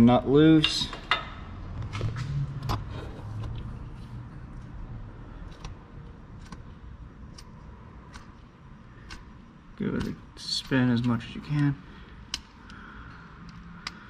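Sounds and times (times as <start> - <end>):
wrench clicking on a nut: 9.0 - 9.3.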